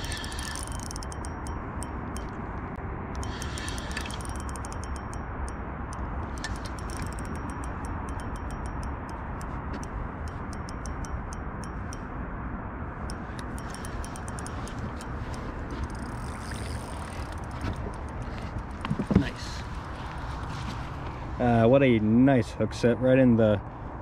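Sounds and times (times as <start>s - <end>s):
spinning reel clicking: 0.0s - 2.4s, 3.2s - 12.0s, 13.1s - 19.0s.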